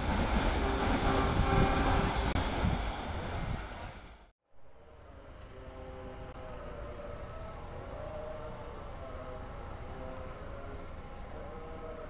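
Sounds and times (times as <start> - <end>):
insect trill: 4.5 - 12.0.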